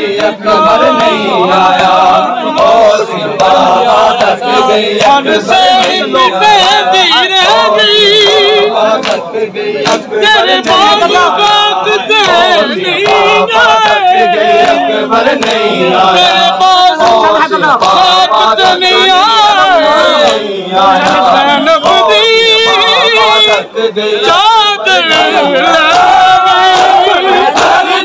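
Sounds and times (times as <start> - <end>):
crowd of men chanting: 0.0 - 28.0
hands slapping bare chests: 0.2 - 6.8, 9.0 - 10.9, 12.2 - 15.7, 25.1 - 27.9.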